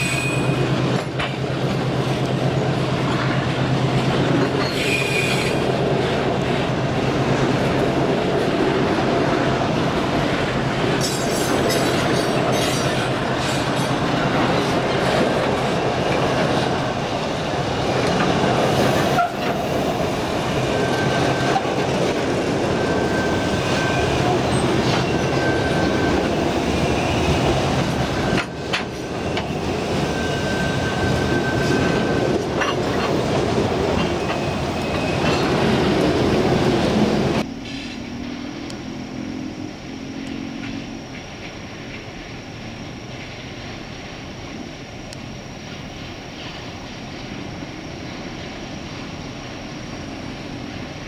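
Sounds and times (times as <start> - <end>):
diesel locomotive engine hum: 0.0 - 51.0
train wheels rumbling on rails: 0.0 - 51.0
high-pitched wheel squeal: 4.6 - 5.7, 22.7 - 27.5, 28.2 - 32.4.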